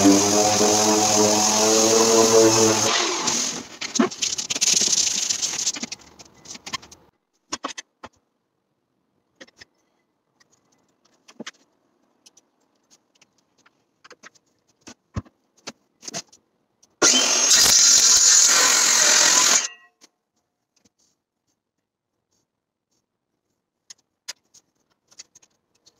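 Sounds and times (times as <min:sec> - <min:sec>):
palm sander running: 0:00.0 - 0:03.6
circular saw starting: 0:00.0 - 0:03.7, 0:17.0 - 0:19.7.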